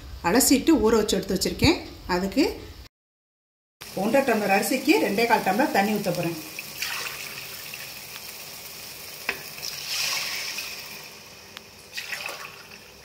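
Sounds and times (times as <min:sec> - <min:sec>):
water splashing and sizzling in pot: 0:03.8 - 0:13.0.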